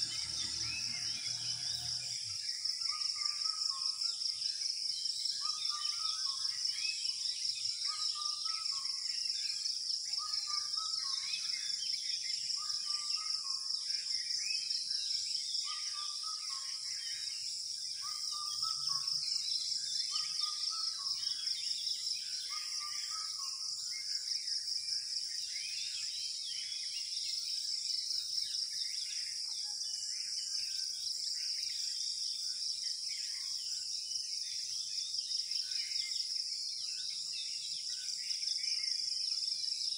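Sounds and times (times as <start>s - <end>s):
birds calling in trees: 0.0s - 3.8s.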